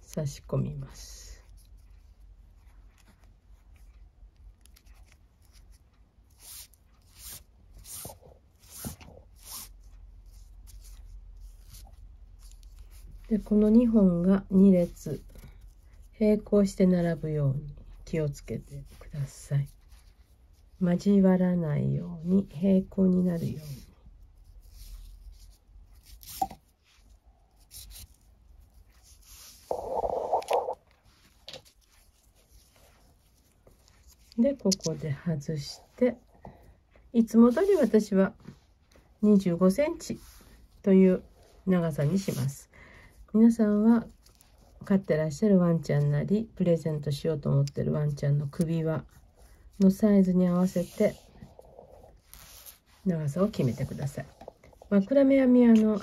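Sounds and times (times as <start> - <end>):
cord rubbing and rustling: 0.0 - 42.7, 43.6 - 46.2, 47.6 - 56.0
cord swishing through buckle: 4.8 - 13.7, 50.4 - 54.9.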